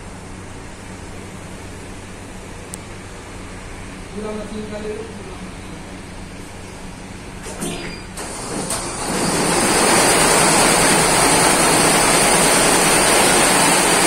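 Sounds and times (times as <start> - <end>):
embroidery machine running: 8.2 - 14.0.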